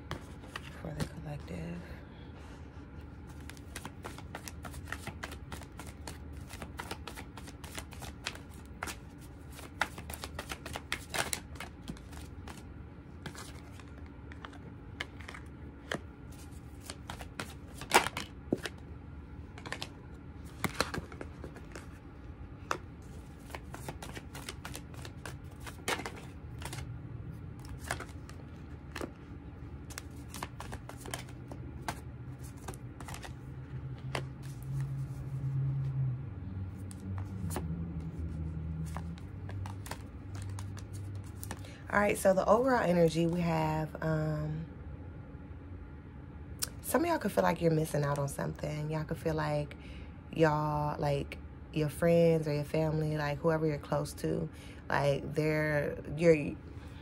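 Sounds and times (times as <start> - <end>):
cards being shuffled: 0.0 - 1.5, 3.2 - 18.8, 19.5 - 22.0, 22.6 - 35.9, 36.7 - 41.8.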